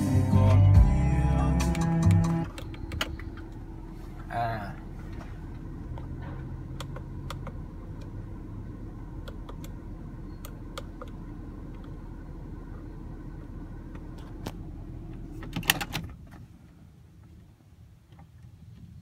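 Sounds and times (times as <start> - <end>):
car engine idling: 0.0 - 19.0
ignition key clicks: 1.6 - 3.6, 6.7 - 8.2, 9.2 - 12.0, 15.4 - 16.2.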